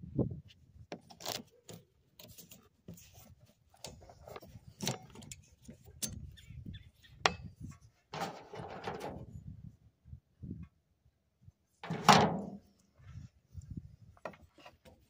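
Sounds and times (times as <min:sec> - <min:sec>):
light rubbing and scraping: 0:00.5 - 0:09.5.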